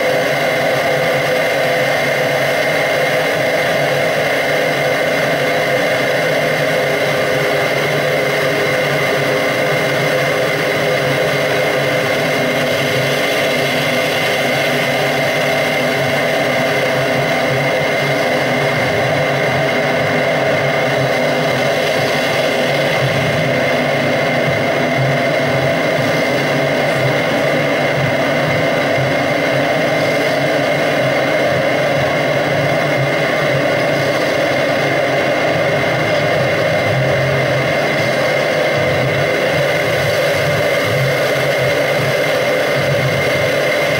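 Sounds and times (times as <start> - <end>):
electronic drone: 0.0 - 43.9.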